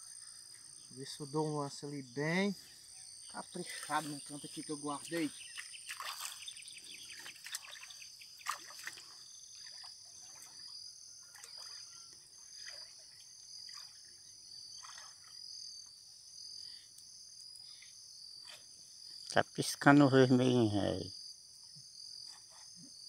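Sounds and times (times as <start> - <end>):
frogs and insects calling: 0.0 - 23.0
legs wading through water: 5.2 - 15.4.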